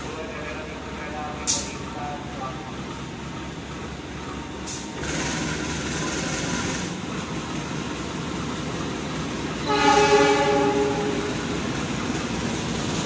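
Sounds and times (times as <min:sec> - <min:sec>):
diesel locomotive running: 0:00.0 - 0:13.0
wheel and rail noise: 0:00.0 - 0:13.0
locomotive horn blast: 0:09.6 - 0:11.4.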